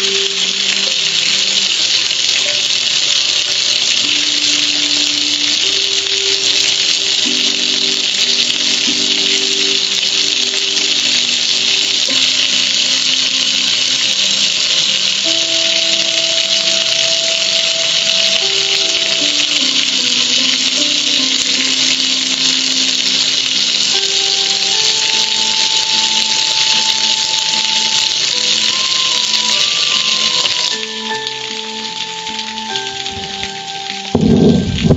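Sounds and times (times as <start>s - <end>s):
slow held-note music: 0.0s - 2.7s, 3.4s - 14.0s, 14.9s - 34.9s
water spraying on metal grill: 0.0s - 34.9s.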